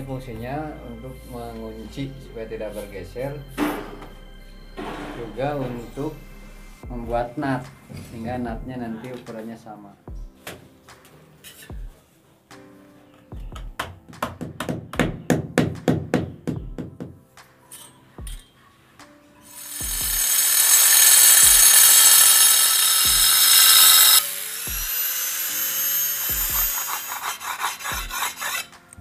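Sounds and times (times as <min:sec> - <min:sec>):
angle grinder cutting tile: 0:19.5 - 0:28.8.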